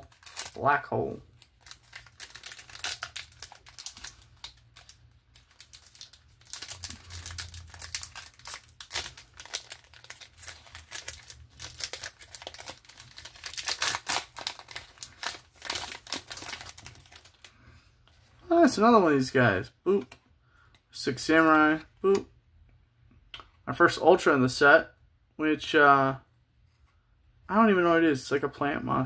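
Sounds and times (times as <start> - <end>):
foil wrapper crinkling and tearing: 0.0 - 17.5.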